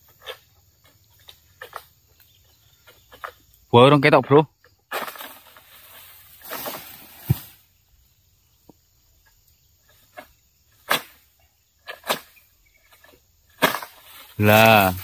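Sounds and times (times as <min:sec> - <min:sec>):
palm fronds rustling: 0:04.9 - 0:07.7, 0:09.8 - 0:15.0
sharp thump: 0:06.7 - 0:07.6.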